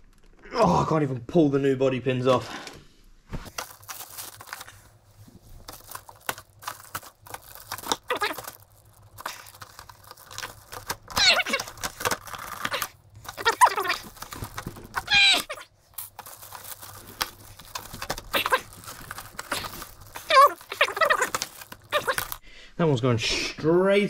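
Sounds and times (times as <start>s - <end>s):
handling rustles: 3.3s - 22.4s
plastic wrapping crinkling and tearing: 3.5s - 22.4s.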